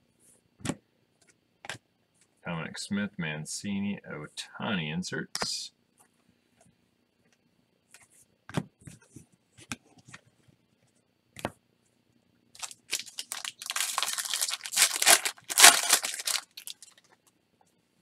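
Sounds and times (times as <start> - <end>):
foil wrapper tearing and crinkling: 12.6 - 17.1.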